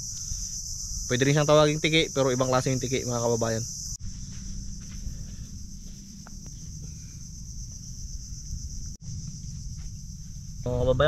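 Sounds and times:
insects droning: 0:00.0 - 0:11.0
low rumble: 0:04.0 - 0:11.0.

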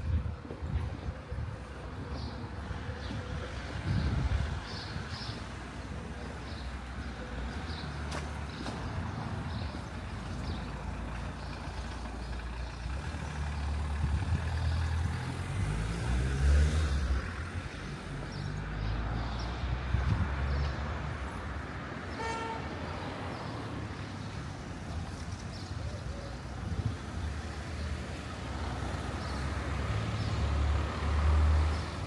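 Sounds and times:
motor vehicle passing: 0:07.6 - 0:21.8, 0:27.3 - 0:32.0.

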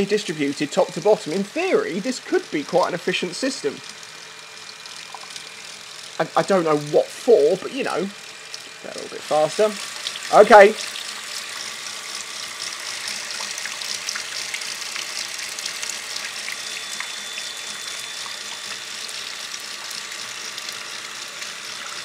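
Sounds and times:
water spraying and splashing: 0:04.7 - 0:07.0, 0:07.6 - 0:11.6.

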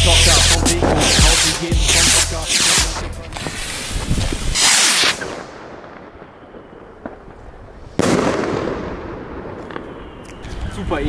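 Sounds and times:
firework rocket hissing whoosh: 0:00.4 - 0:05.4
firework bang: 0:04.6 - 0:10.2.

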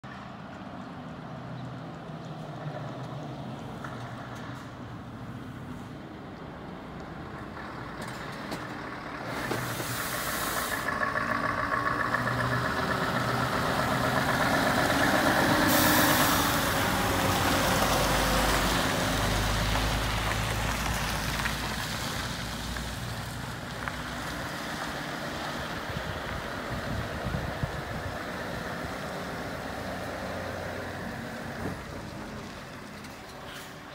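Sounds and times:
truck diesel engine passing: 0:00.1 - 0:33.9
air brake hiss: 0:09.4 - 0:10.9, 0:15.6 - 0:16.5.

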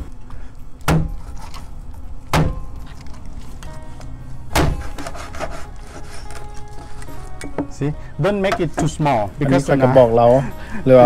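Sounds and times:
background music: 0:00.0 - 0:11.0
knife chopping onto cutting board: 0:04.5 - 0:05.2.

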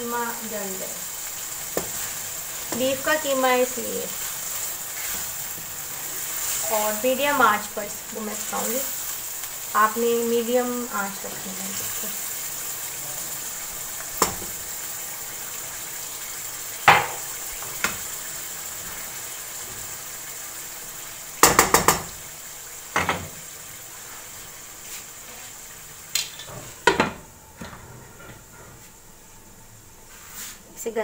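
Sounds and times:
minced beef sizzling: 0:00.0 - 0:31.0
wooden spatula knocking on pan: 0:14.2 - 0:14.5, 0:16.9 - 0:18.0, 0:21.4 - 0:22.2.

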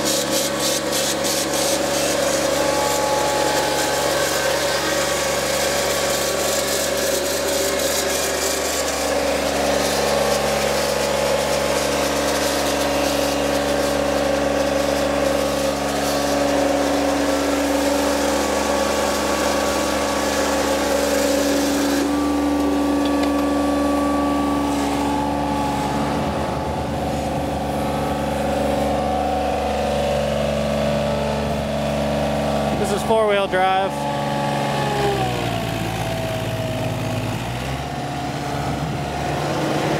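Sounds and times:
hiss: 0:00.0 - 0:26.2
diesel engine running: 0:00.0 - 0:39.9.

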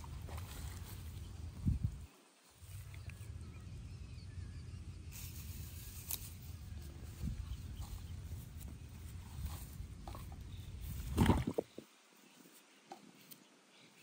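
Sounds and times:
steady low rumble: 0:00.0 - 0:02.1, 0:02.7 - 0:11.7
faint clicks: 0:02.7 - 0:03.2.

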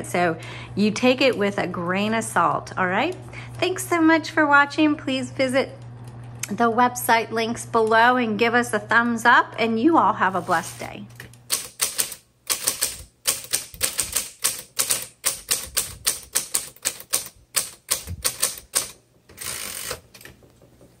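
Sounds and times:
typewriter motor hum: 0:11.1 - 0:20.4
typewriter key strikes: 0:11.5 - 0:20.2.

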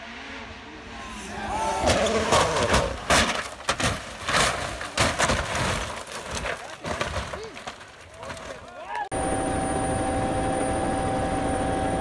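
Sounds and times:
car crashing and rolling: 0:01.1 - 0:08.7.

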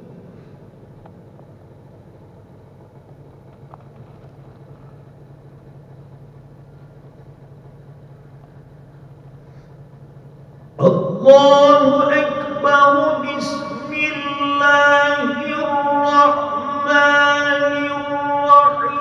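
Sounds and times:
steady low hum: 0:00.0 - 0:19.0
echo of recited verse: 0:10.8 - 0:19.0.

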